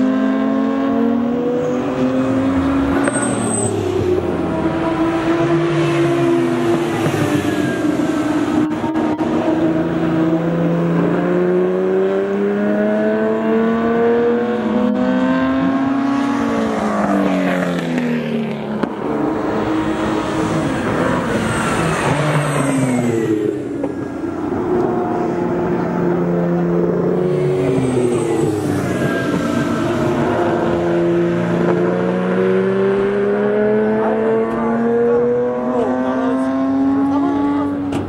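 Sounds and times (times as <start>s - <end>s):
racing engine at full throttle: 0.0s - 38.0s.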